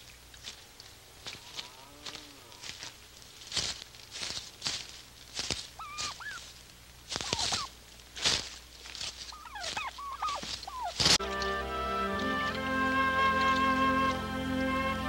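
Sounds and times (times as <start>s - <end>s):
footsteps crunching on dirt: 0.0s - 12.6s
bird chirping: 5.7s - 7.8s, 9.1s - 15.0s.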